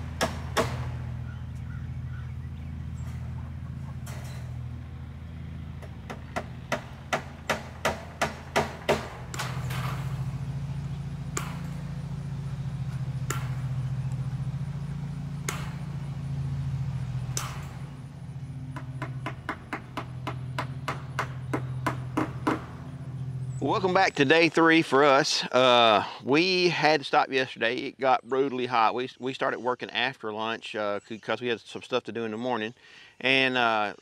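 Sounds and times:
hammer striking wooden posts: 0:00.0 - 0:01.7, 0:03.3 - 0:23.2
steady low hum: 0:00.0 - 0:26.3.

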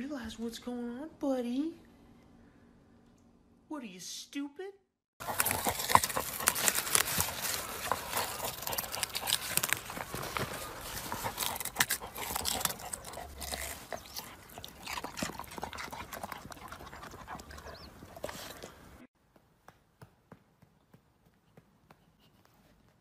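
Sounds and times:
dog digging in soil: 0:05.2 - 0:18.8.

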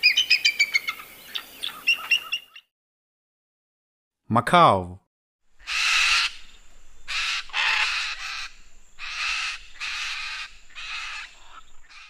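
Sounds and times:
macaw squawking: 0:00.0 - 0:02.6, 0:05.6 - 0:12.0.

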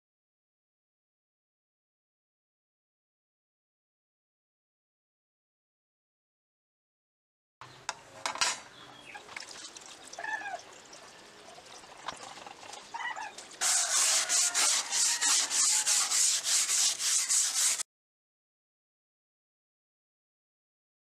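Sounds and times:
hand sanding strokes: 0:13.6 - 0:17.9.

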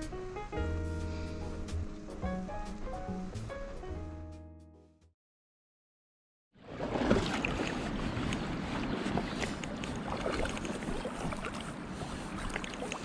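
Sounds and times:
water rushing: 0:06.6 - 0:13.0
water splashing and trickling: 0:06.6 - 0:13.0
wind buffeting microphone: 0:06.9 - 0:13.0.

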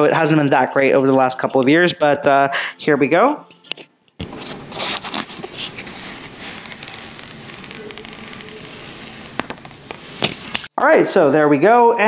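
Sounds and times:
plastic film peeling off screen: 0:04.2 - 0:10.7.

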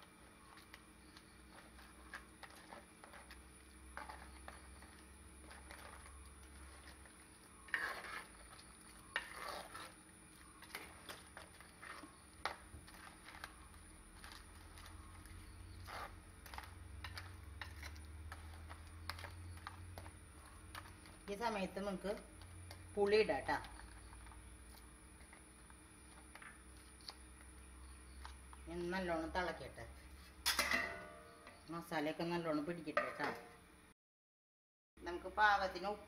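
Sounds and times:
ladle stirring curry: 0:00.2 - 0:28.7
ladle scraping earthenware pot: 0:00.3 - 0:31.6.

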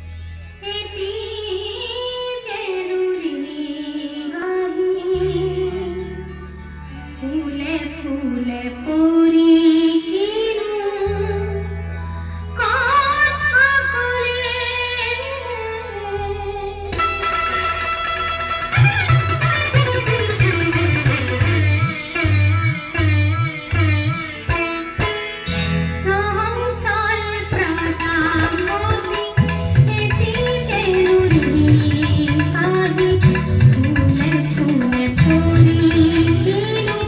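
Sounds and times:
woman singing wavering melody: 0:00.6 - 0:06.3, 0:26.0 - 0:37.0.

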